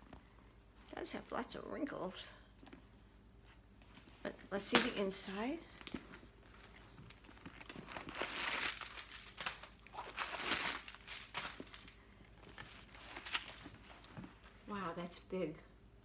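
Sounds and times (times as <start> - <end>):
tissue paper crinkling: 5.8 - 14.6.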